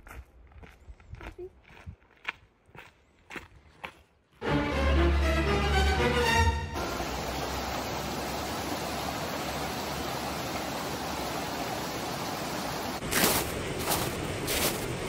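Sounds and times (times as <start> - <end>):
creek flowing over stones: 6.8 - 15.0.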